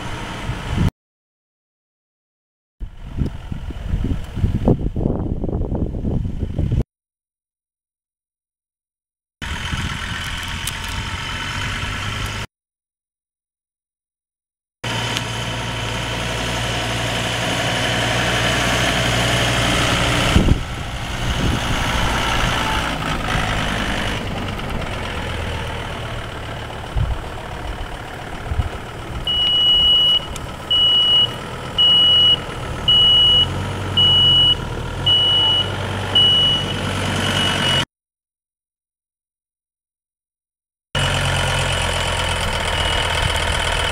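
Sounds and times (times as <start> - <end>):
tractor diesel engine running: 0.0 - 0.9, 2.8 - 6.7, 9.4 - 12.5, 14.8 - 37.8, 41.0 - 43.9
short high beeps: 29.3 - 37.8.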